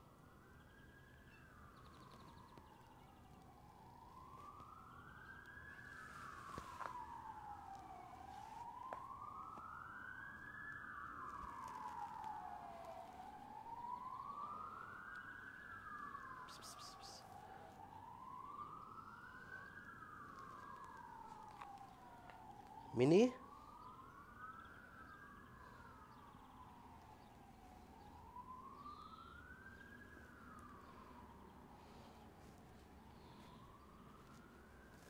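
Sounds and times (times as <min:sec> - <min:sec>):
emergency siren wailing: 0:00.0 - 0:35.0.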